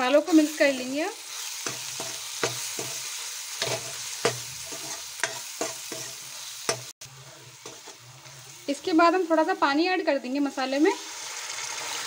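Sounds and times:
spices sizzling in oil: 0.0 - 12.0
ladle clinking and scraping pan: 1.6 - 8.5.

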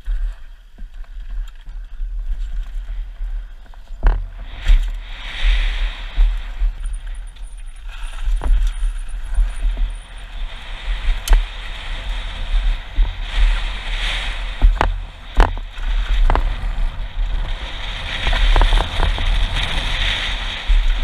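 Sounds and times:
wind buffeting microphone: 0.0 - 21.0
bike knocking over bumps: 11.0 - 21.0.

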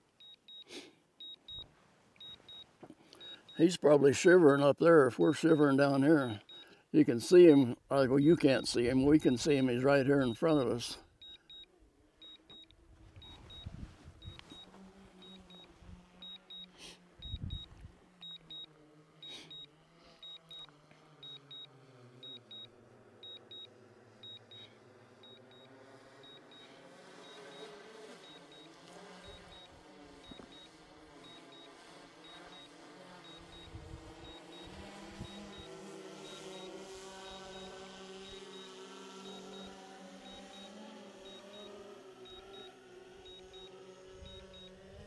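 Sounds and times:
remote controller double beeps: 0.2 - 2.6, 11.2 - 23.6, 29.3 - 31.7, 32.3 - 42.7, 43.3 - 44.8
drone propellers humming: 7.3 - 45.0.

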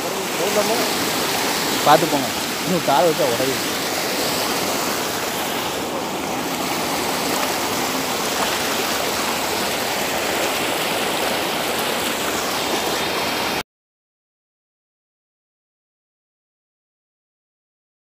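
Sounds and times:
floodwater rushing over road: 0.0 - 13.6.

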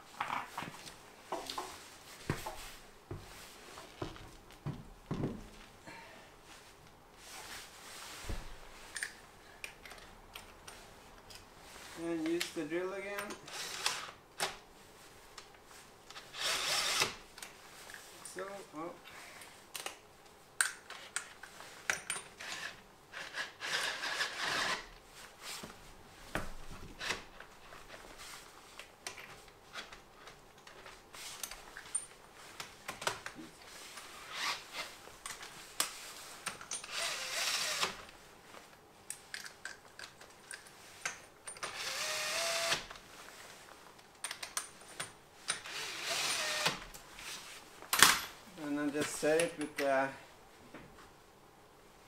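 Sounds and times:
cordless drill running: 13.5 - 14.1, 16.4 - 17.1, 36.9 - 37.9, 41.7 - 42.8, 45.6 - 46.8.

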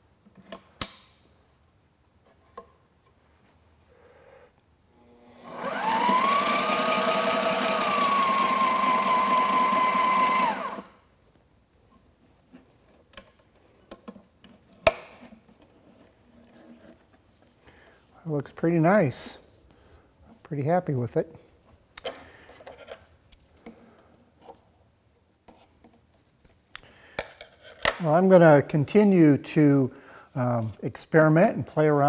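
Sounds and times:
sewing machine motor whine: 5.0 - 10.9.

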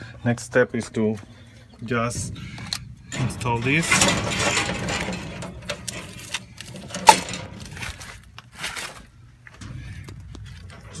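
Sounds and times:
rustling: 2.4 - 11.0.

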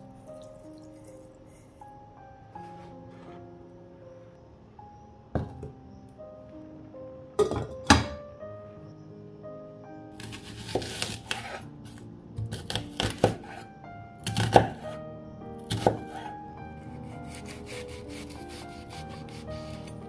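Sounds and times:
background music: 0.0 - 20.0.

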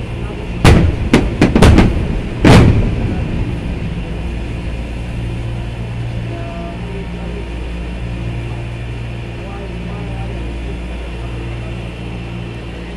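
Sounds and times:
low rumble: 0.0 - 12.9
firework shells bursting: 0.6 - 3.5.

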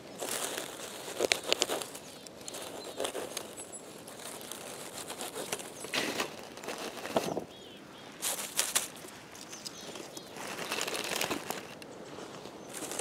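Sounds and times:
pine needles rustling and crackling: 0.0 - 7.6, 8.2 - 13.0.

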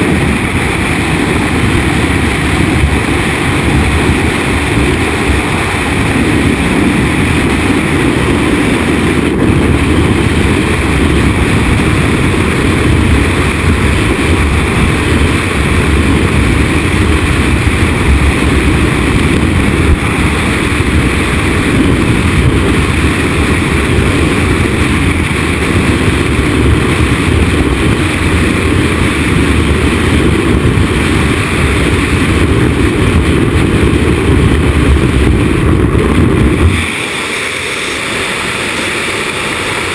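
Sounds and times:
wind rushing over microphone: 0.0 - 39.9.

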